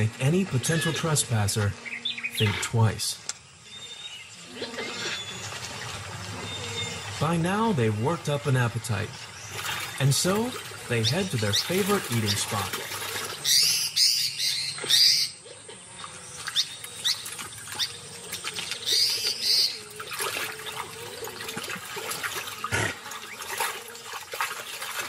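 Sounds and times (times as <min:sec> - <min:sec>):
bird calling loudly: 0:00.5 - 0:03.0, 0:10.8 - 0:21.5.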